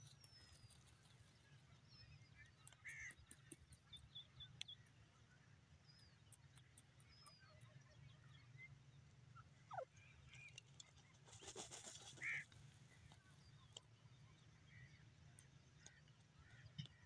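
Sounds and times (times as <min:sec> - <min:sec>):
bird dust-bathing in gravel: 0:10.9 - 0:12.8.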